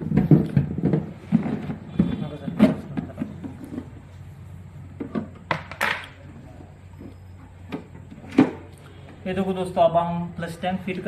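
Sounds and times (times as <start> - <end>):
plastic knocks and clatters: 0.0 - 4.0, 5.0 - 6.1.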